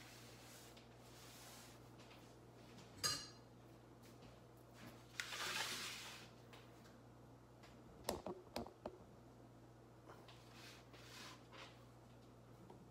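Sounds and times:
baking tray scraping on counter: 0:05.2 - 0:06.3, 0:10.5 - 0:11.6.

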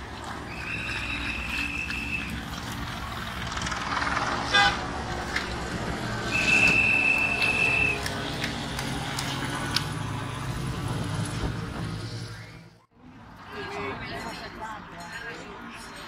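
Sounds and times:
cars and motorcycles passing: 0:00.0 - 0:16.0
long whistle blasts: 0:06.2 - 0:08.1.

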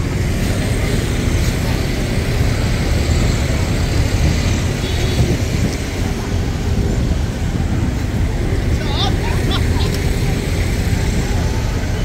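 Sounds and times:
cars passing: 0:00.0 - 0:12.0.

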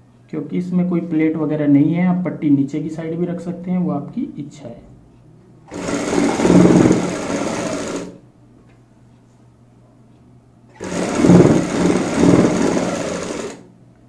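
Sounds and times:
sewing machine stitching: 0:05.7 - 0:08.2, 0:10.7 - 0:13.7.

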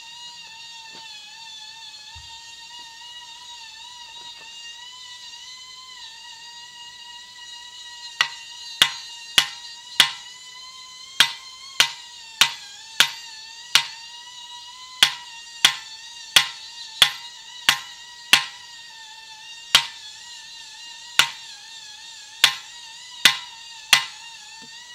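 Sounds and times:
hammer striking steel wedges: 0:08.2 - 0:10.3, 0:11.2 - 0:14.0, 0:15.0 - 0:18.6, 0:19.8 - 0:20.0, 0:21.2 - 0:21.4, 0:22.4 - 0:24.2
steady high-pitched tone: 0:15.0 - 0:18.6.

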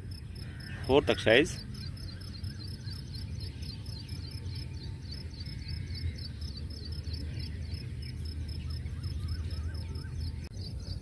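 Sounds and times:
insects chirping: 0:00.0 - 0:11.0
low steady rumble: 0:00.0 - 0:11.0
faint bird chirps: 0:00.1 - 0:11.0.

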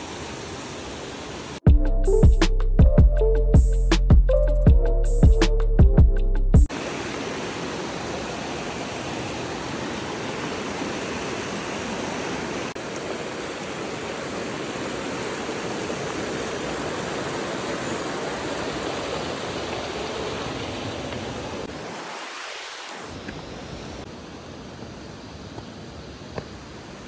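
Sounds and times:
waterfall rushing: 0:06.7 - 0:23.2.

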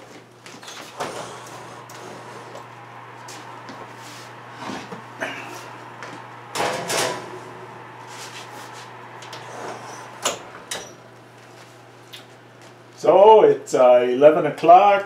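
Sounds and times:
oven door shutting with a bang: 0:06.5 - 0:07.4.

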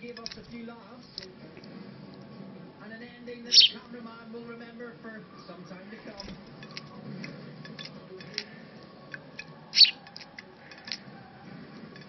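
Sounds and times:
beak pecking on a plate: 0:03.5 - 0:03.9, 0:06.0 - 0:12.0.

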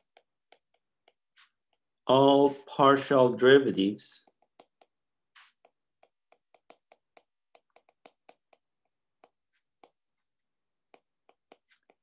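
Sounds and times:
stylus tapping on glass screen: 0:00.0 - 0:02.0, 0:04.2 - 0:10.1, 0:10.8 - 0:12.0.

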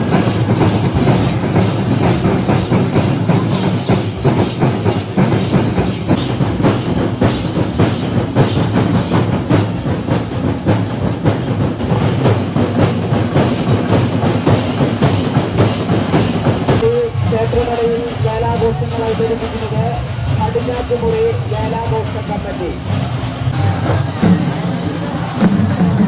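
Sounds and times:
hand cymbals clashing: 0:00.0 - 0:16.9
many drums beating: 0:00.0 - 0:26.0.

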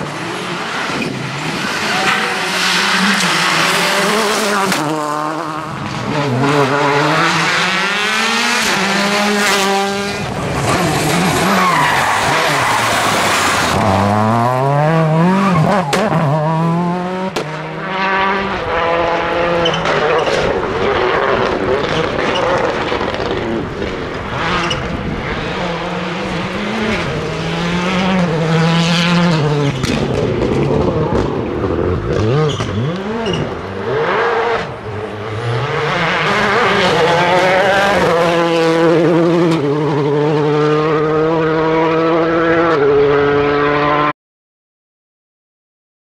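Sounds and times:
rally car engine revving: 0:00.0 - 0:44.1.

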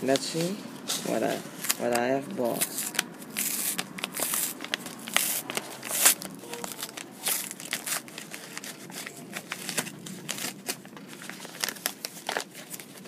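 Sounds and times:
bubble envelope crinkling: 0:00.1 - 0:13.0.

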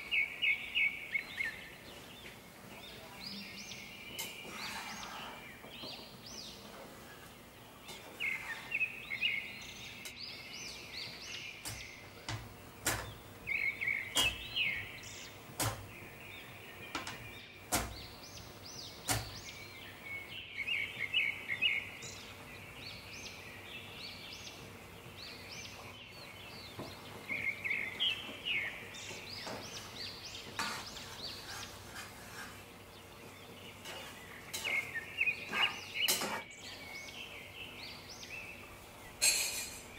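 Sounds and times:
birds chirping: 0:00.0 - 0:39.9
sharp clicks or knocks: 0:11.6 - 0:13.2, 0:15.6 - 0:16.0, 0:19.0 - 0:19.4.

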